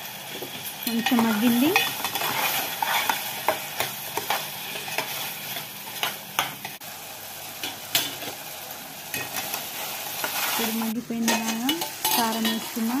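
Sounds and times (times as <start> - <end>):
steady sizzle: 0.0 - 13.0
metal spoon scraping a pot: 0.9 - 6.2.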